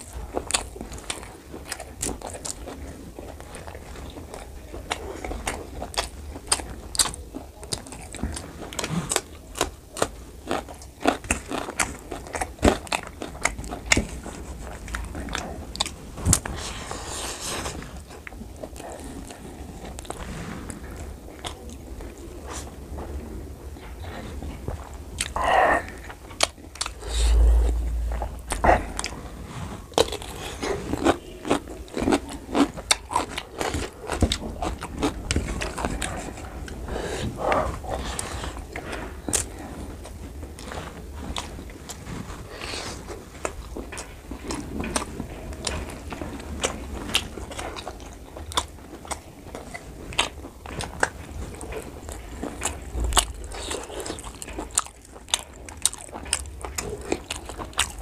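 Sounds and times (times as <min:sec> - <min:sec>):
man chewing and lip smacking: 0:00.0 - 0:17.2, 0:43.3 - 0:58.0
dull low thump: 0:27.0 - 0:29.4.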